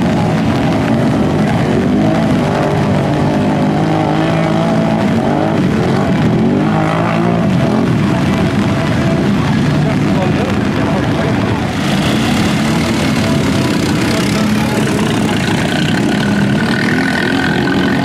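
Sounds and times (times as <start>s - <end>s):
atv engines revving: 0.0s - 18.0s.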